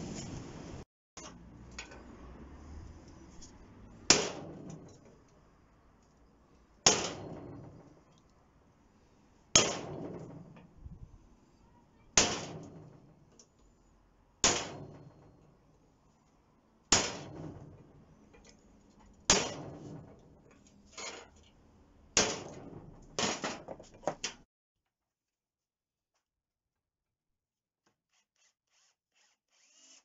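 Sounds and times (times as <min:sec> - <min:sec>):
hammer striking punch on steel: 0:04.1 - 0:04.9, 0:06.8 - 0:07.7, 0:09.6 - 0:10.3, 0:12.2 - 0:12.9, 0:14.4 - 0:15.2, 0:16.9 - 0:17.8, 0:19.3 - 0:20.0, 0:22.2 - 0:23.4.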